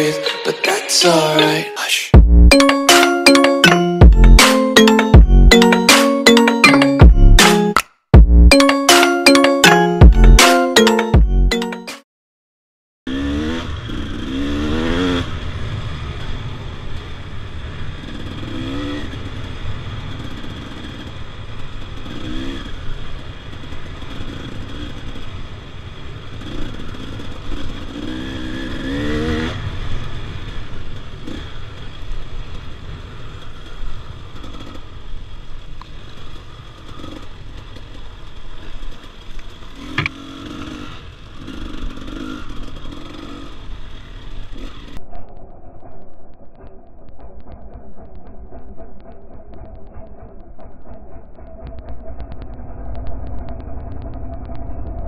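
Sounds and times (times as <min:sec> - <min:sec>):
dirt bike engine revving: 0:13.1 - 0:35.1, 0:36.1 - 0:45.0.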